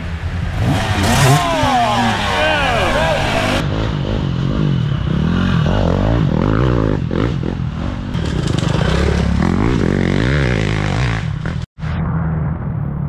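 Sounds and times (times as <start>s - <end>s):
dirt bike engine revving: 0.1s - 11.7s.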